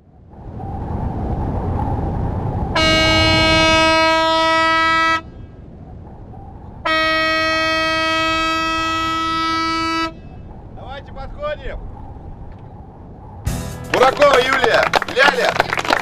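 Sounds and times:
low steady rumble: 0.0 - 16.0
vehicle horn blasts: 2.8 - 5.3, 6.8 - 10.2.

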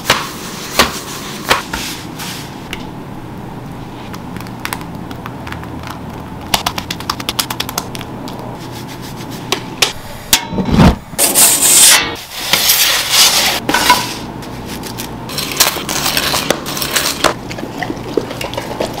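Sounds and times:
metal pizza peel scraping: 10.7 - 17.4.

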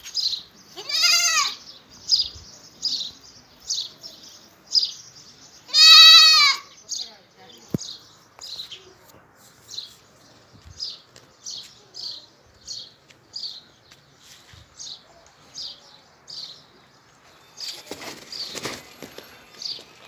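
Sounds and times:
rustling scuffing noise: 7.8 - 15.7, 16.4 - 20.0.

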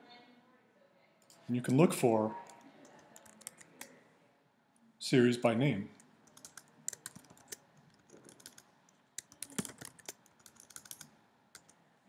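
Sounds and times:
faint keyboard typing: 1.2 - 4.0, 5.9 - 11.8.

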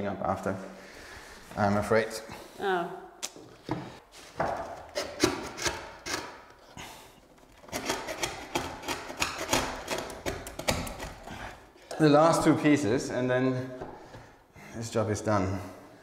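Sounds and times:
screw rasping into wood: 4.9 - 6.7, 7.5 - 11.4.

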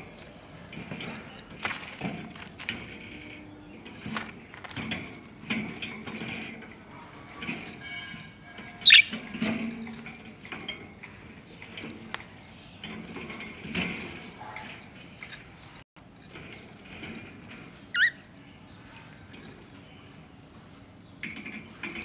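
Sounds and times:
birds moving in wire cage: 0.0 - 22.0
budgerigars chirping: 8.8 - 9.2, 18.0 - 18.2.

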